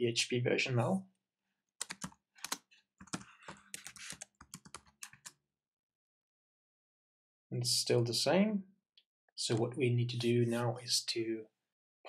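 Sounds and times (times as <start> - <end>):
typing on computer keyboard: 1.8 - 5.3.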